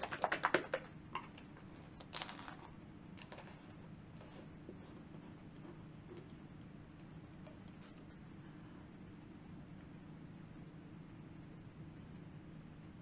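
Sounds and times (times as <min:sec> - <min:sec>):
craft supplies rustling: 0:00.0 - 0:05.0
low steady hum: 0:00.0 - 0:13.0.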